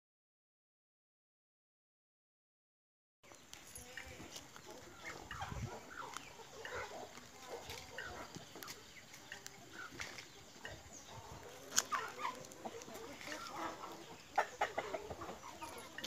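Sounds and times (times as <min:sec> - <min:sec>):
chickens clucking: 0:03.3 - 0:16.0.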